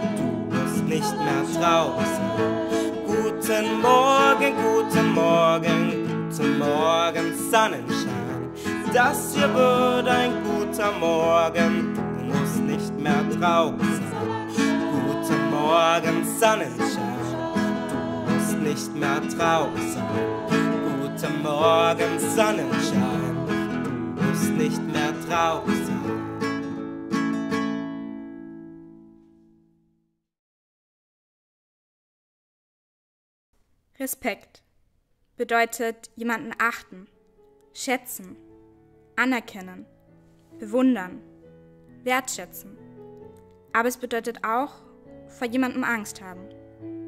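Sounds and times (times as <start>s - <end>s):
person singing: 0.0s - 26.6s
strummed acoustic guitar: 0.0s - 29.1s.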